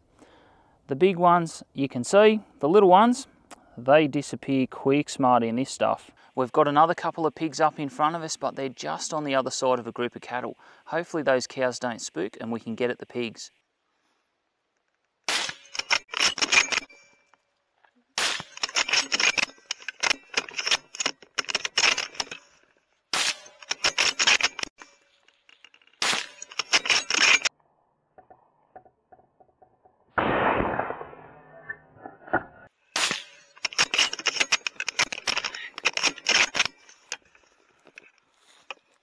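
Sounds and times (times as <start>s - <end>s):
rifle shots: 30.2s - 31.5s.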